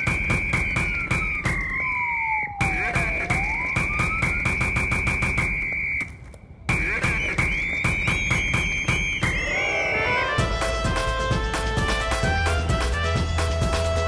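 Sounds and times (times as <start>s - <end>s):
siren wailing: 0.0s - 6.1s, 6.8s - 10.6s
background music with steady beat: 10.3s - 14.0s.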